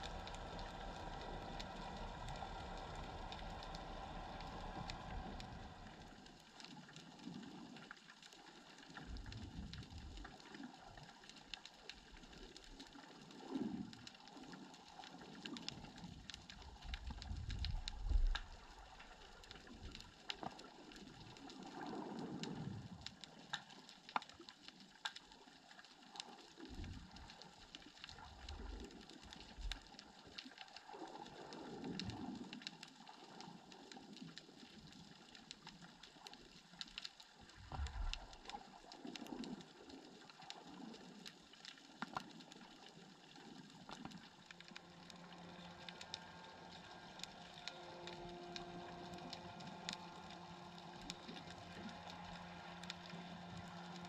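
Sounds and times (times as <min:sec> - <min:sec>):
distant boat engine hum: 0:00.0 - 0:06.4, 0:44.3 - 0:54.0
water movement whooshing: 0:00.0 - 0:07.8
underwater crackling clicks: 0:00.0 - 0:54.0.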